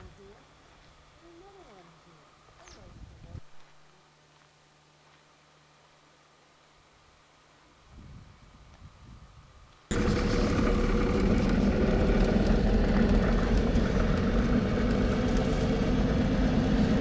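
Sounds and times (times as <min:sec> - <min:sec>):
engine hum inside vehicle: 0:09.9 - 0:17.0.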